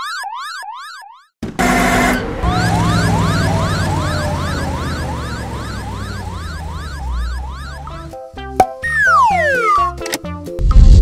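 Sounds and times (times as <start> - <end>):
emergency siren wailing: 1.6 - 8.2, 8.9 - 9.9
low engine rumble: 1.6 - 8.2.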